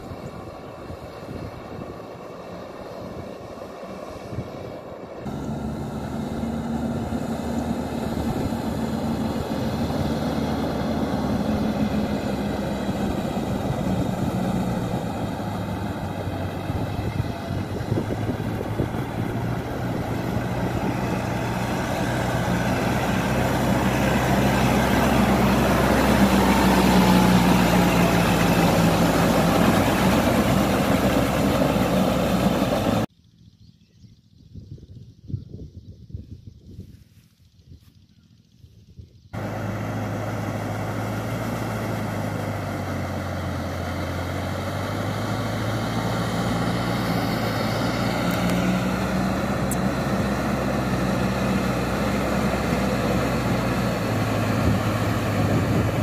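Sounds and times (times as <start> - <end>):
tractor diesel engine under load: 0.0 - 33.1, 39.4 - 56.0.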